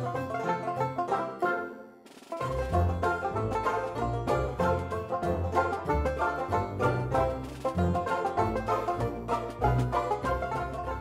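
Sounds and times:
plucked notes: 0.0 - 11.0
steady bass line: 2.4 - 11.0.

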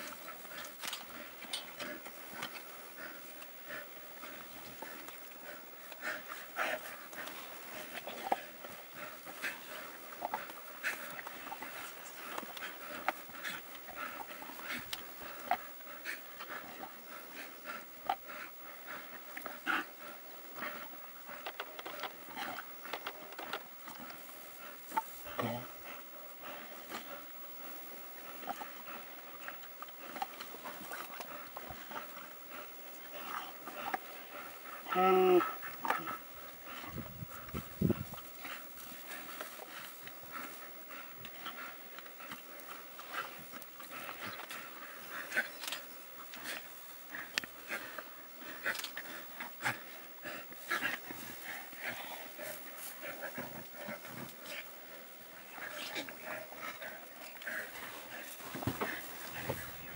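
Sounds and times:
wild dogs twittering calls: 0.0 - 59.9
wild dogs tearing and chewing: 37.4 - 59.9.

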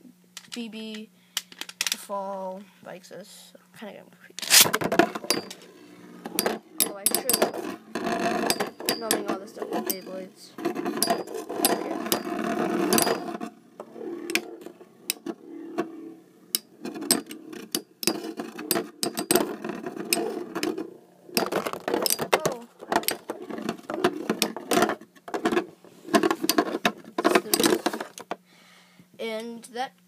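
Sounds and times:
spinning tops grinding: 4.4 - 28.1.

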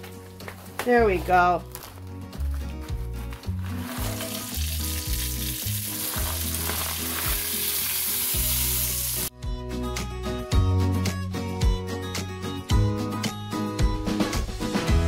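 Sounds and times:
onions sizzling in butter: 3.8 - 9.3.

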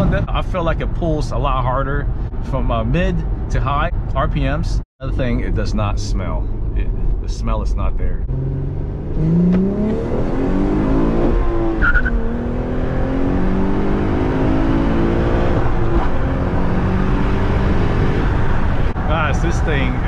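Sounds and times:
car engine revving hard: 8.3 - 19.0.

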